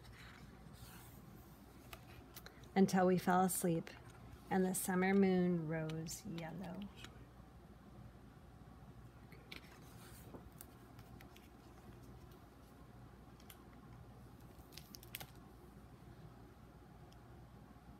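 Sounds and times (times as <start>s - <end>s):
book pages rustling: 0.0s - 2.8s, 9.4s - 13.6s.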